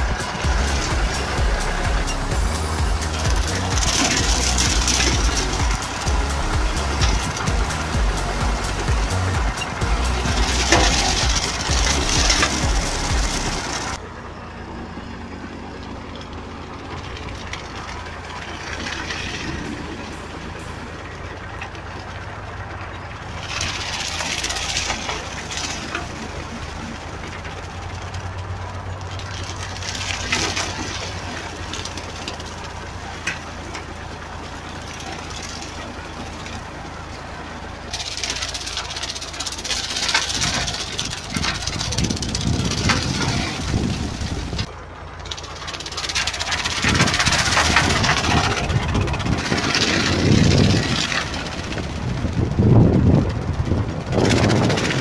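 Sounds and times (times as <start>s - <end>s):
slasher blades crackling through brush: 0.0s - 14.0s, 29.0s - 33.5s, 37.9s - 55.0s
tractor engine running: 0.0s - 55.0s.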